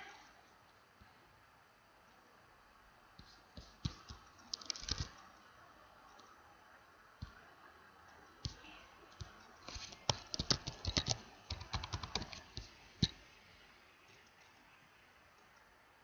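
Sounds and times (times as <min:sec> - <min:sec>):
computer keyboard typing: 0:03.6 - 0:05.2, 0:08.5 - 0:13.2.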